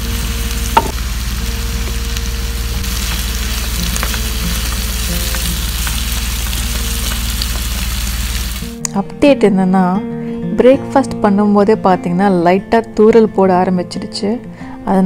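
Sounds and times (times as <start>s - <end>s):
vegetables sizzling in a frying pan: 0.0s - 8.8s.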